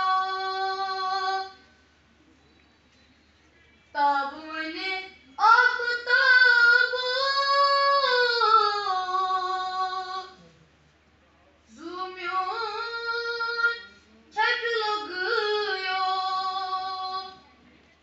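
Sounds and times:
boy singing unaccompanied: 0:00.0 - 0:01.6, 0:04.0 - 0:10.4, 0:11.7 - 0:17.4.

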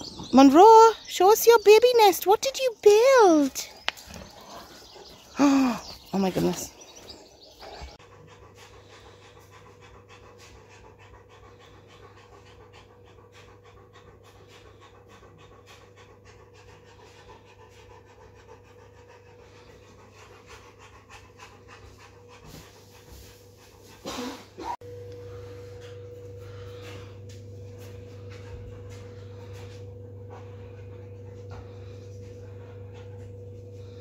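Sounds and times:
dog panting: 0:00.0 - 0:34.0
faint steady hum: 0:24.8 - 0:34.0.

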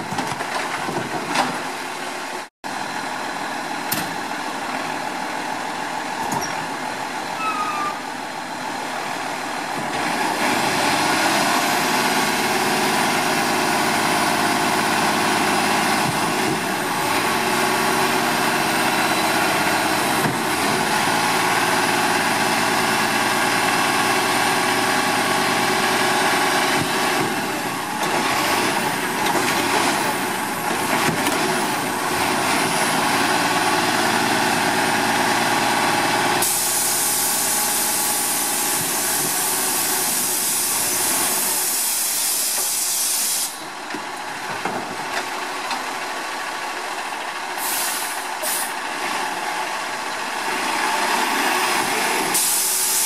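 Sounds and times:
garbage truck diesel engine: 0:00.0 - 0:53.0
loud steady hiss: 0:36.4 - 0:43.7, 0:52.2 - 0:53.0.

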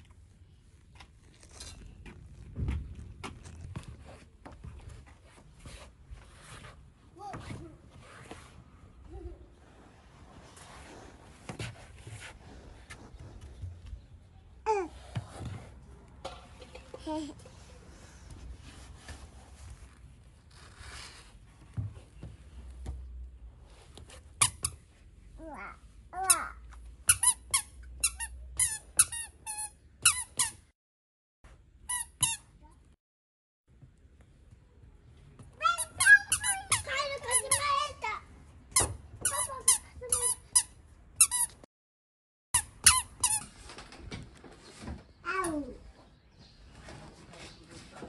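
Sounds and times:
squeaky shoes squeaking: 0:35.7 - 0:37.8, 0:42.6 - 0:43.5.

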